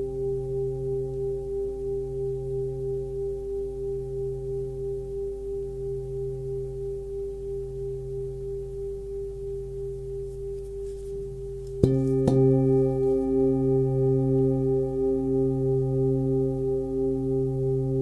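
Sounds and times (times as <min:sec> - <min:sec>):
singing bowl ringing: 0:11.8 - 0:18.0.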